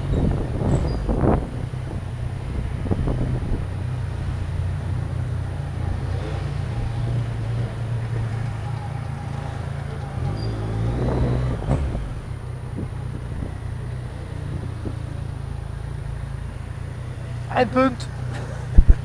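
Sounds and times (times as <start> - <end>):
wind noise on microphone: 0.0 - 4.7, 10.2 - 15.3, 18.7 - 19.0
moped engine running: 0.0 - 19.0.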